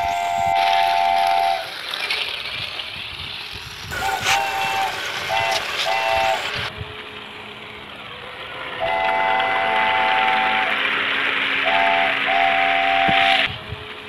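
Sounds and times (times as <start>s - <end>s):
train horn: 0.0s - 1.8s, 4.0s - 6.7s, 8.2s - 13.9s
train running rumble: 0.0s - 14.0s.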